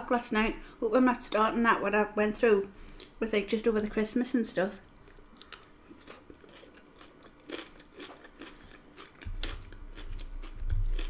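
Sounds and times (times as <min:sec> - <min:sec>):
chewing and crunching food: 0:04.8 - 0:11.0.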